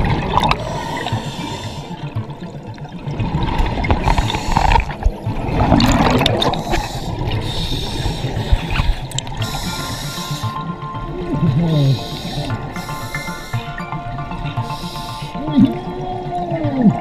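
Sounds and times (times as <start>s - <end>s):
exhaled air bubbling: 0.0s - 14.0s
scuba regulator breathing hiss: 0.6s - 2.0s, 4.1s - 4.8s, 6.5s - 10.6s, 11.9s - 13.7s, 14.6s - 15.4s.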